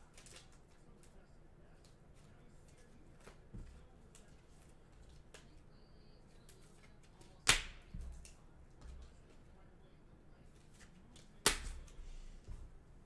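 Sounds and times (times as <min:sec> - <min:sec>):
soft card taps: 0:06.5 - 0:09.4
card slapping on table: 0:07.4 - 0:09.0, 0:10.8 - 0:12.0.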